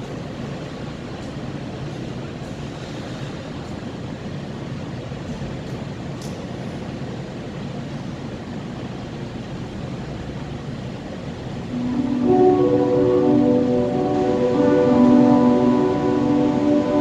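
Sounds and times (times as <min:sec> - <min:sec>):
ice rink background noise: 0:00.0 - 0:17.0
music with held notes: 0:11.7 - 0:17.0.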